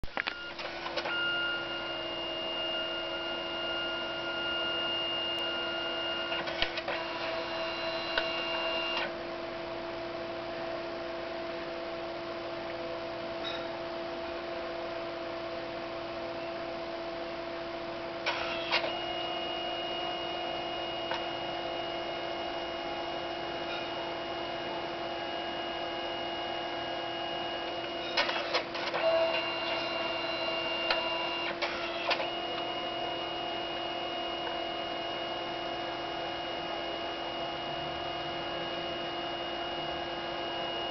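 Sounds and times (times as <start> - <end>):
printer motor whirring: 0.1 - 9.2, 18.2 - 40.9.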